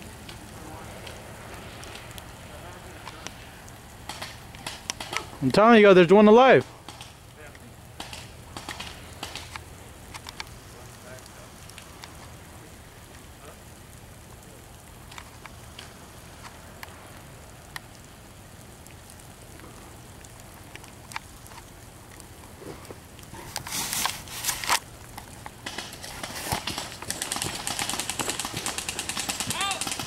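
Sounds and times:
airsoft guns firing full-auto: 4.1s - 5.2s, 8.0s - 9.5s, 25.6s - 30.0s
loud rustling bursts: 7.9s - 10.7s, 21.2s - 30.0s
faint clicks: 18.8s - 22.3s.

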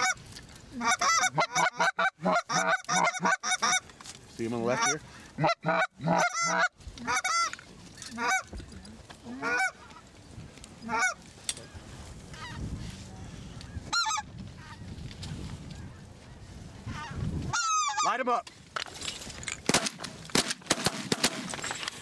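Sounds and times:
goose call honks: 0.8s - 3.8s, 4.7s - 7.5s, 8.2s - 8.5s, 9.3s - 9.8s.

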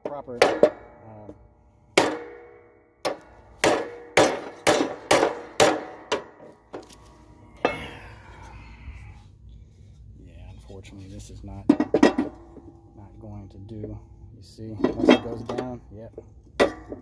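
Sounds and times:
hammer clanging on metal: 0.0s - 1.4s, 2.0s - 6.9s, 14.6s - 15.8s.

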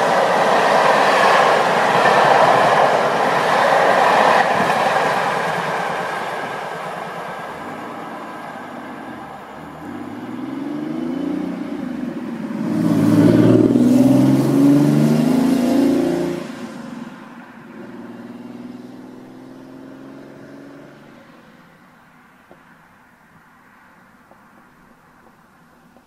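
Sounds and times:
train coaches rolling on rails: 0.0s - 13.8s
passing sound with bending pitch: 0.0s - 17.2s.

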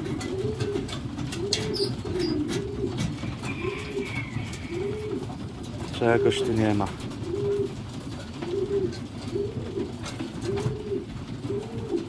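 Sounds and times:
beaks pecking grain: 0.0s - 7.8s
pigeons cooing: 0.0s - 12.0s.

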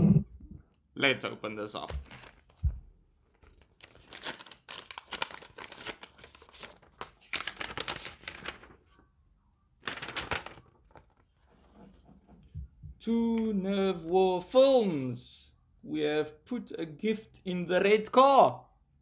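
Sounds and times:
paper envelope being opened: 1.8s - 2.7s, 3.3s - 8.9s, 9.8s - 11.7s
paper rustling and crinkling: 1.8s - 9.0s, 9.8s - 12.4s.

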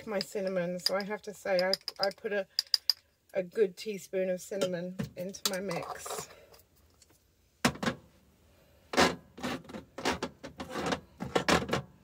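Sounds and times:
spice jars clicking and rattling: 0.0s - 3.1s.

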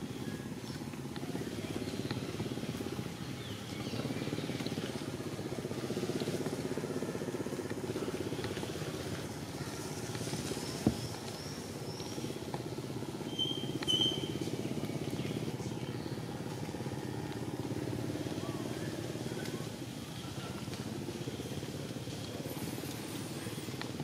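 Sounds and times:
engine humming: 0.0s - 24.0s
faint high chirps: 13.2s - 14.4s.

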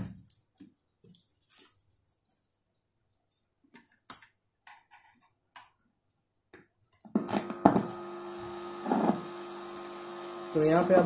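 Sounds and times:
mains hum: 7.1s - 11.0s.

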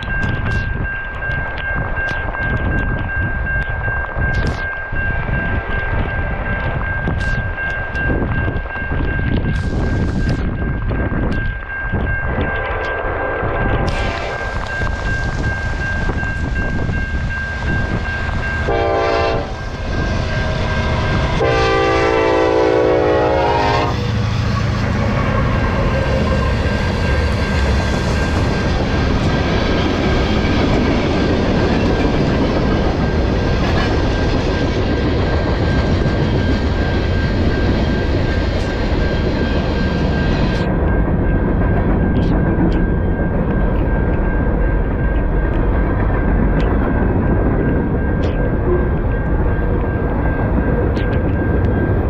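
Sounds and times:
train cars rolling on rails: 0.0s - 52.0s
locomotive air horn blasts: 18.7s - 19.6s, 21.2s - 24.1s.

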